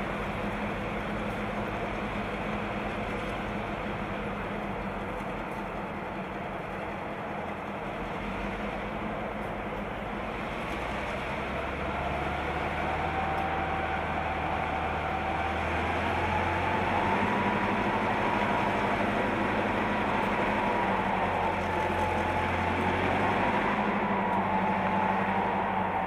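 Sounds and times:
diesel locomotive engine humming: 0.0 - 26.0
faint rising whine: 10.2 - 26.0.

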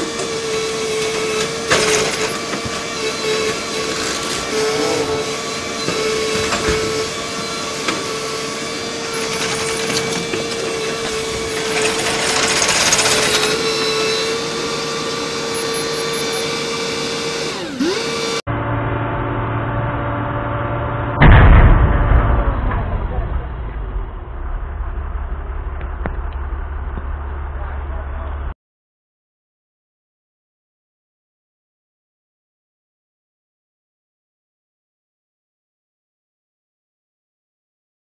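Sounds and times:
excavator engine drone: 0.0 - 28.6.

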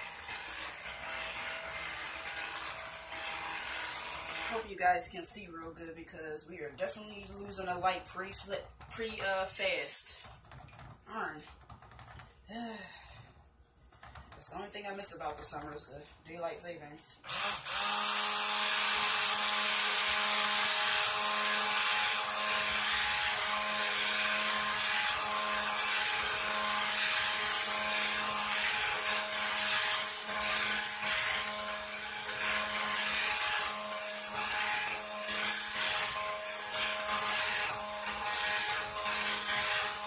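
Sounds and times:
stick blender motor humming: 0.0 - 4.7, 17.2 - 40.0.

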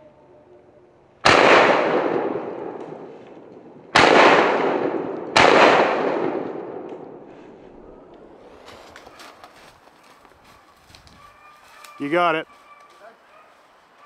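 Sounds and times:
shotgun blasts: 1.2 - 3.1, 3.9 - 7.2.

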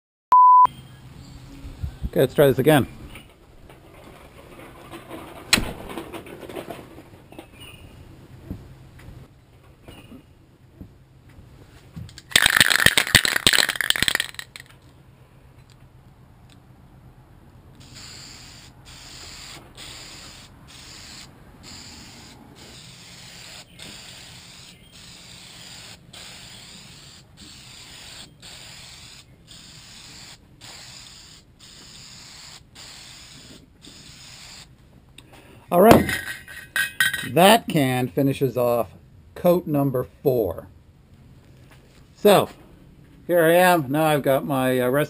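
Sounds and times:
spray can ball rattling: 12.2 - 14.8, 17.8 - 34.7, 36.0 - 37.4
spray hiss: 17.8 - 34.7.

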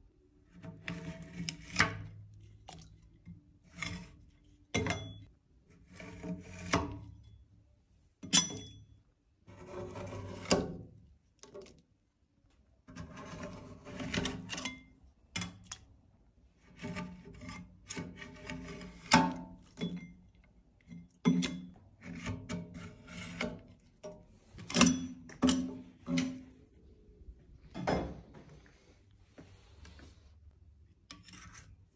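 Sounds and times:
metal scraper scraping wax: 0.5 - 2.8, 3.6 - 4.4, 5.0 - 7.3, 9.5 - 10.9, 12.9 - 14.9, 16.6 - 20.2, 20.9 - 26.4, 31.0 - 31.9.

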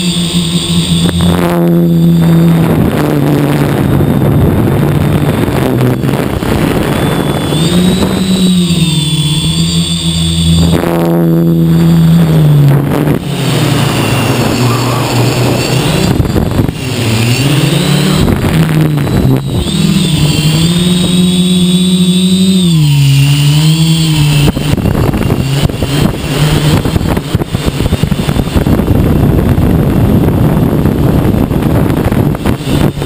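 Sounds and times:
drone propellers buzzing: 0.0 - 33.0
rushing noise: 0.0 - 33.0.

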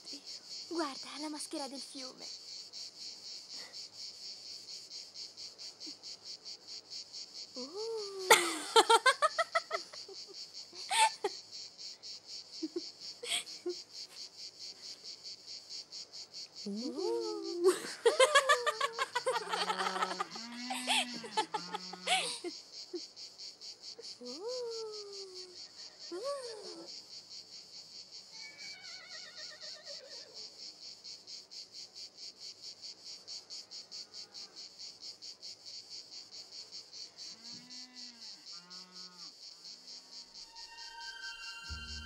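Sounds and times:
insects chirping: 0.0 - 42.0
people laughing: 8.0 - 11.4, 17.0 - 22.5.

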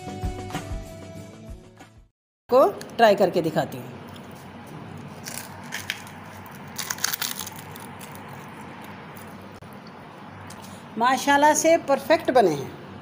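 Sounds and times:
crunchy shells being chewed: 5.0 - 9.5.

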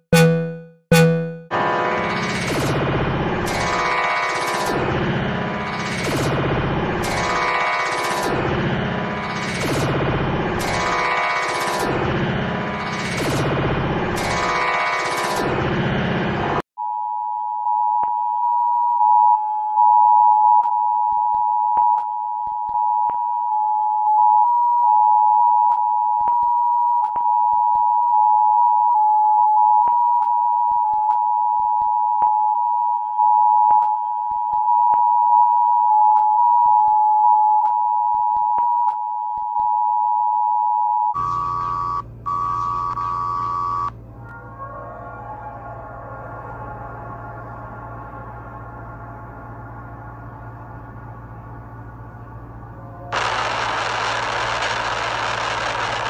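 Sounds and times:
two-tone electronic alert signal: 0.0 - 2.7, 41.2 - 43.9
high electronic tone: 0.0 - 16.6, 53.0 - 56.0
low buzz: 46.8 - 56.0.

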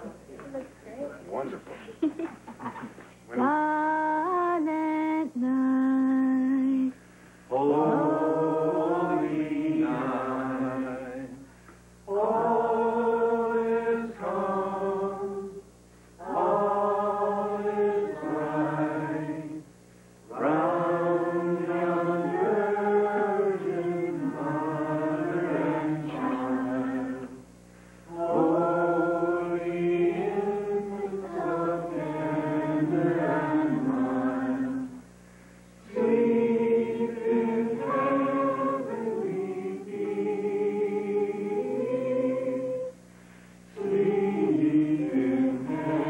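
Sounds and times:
group of people singing: 7.5 - 11.5, 12.1 - 15.6, 16.2 - 19.7, 20.3 - 27.5, 28.1 - 35.1, 35.8 - 43.0, 43.7 - 46.0.

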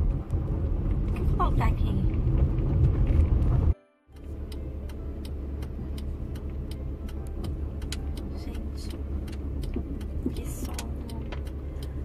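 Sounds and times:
road and engine rumble: 0.0 - 12.0
light clicks and ticks: 4.2 - 12.0.

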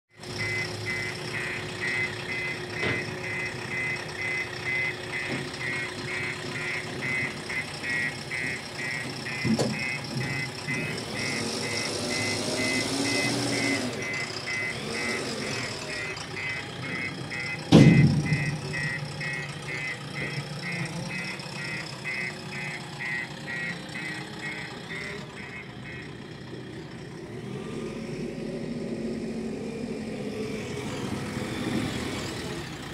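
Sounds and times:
backhoe loader engine running: 0.1 - 32.9
reversing alarm beeping: 0.2 - 30.3
heavy thud: 17.7 - 18.6.

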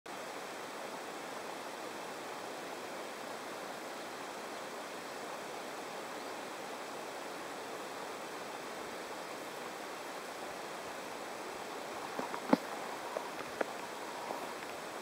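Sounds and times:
steady rushing noise: 8.5 - 15.0.

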